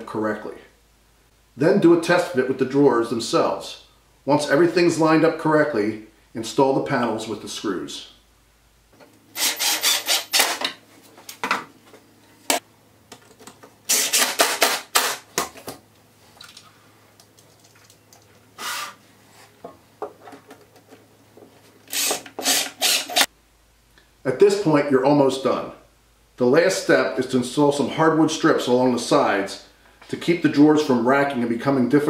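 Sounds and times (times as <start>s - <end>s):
cordless drill driving screws: 9.4s - 10.7s, 13.9s - 15.2s, 21.9s - 23.3s.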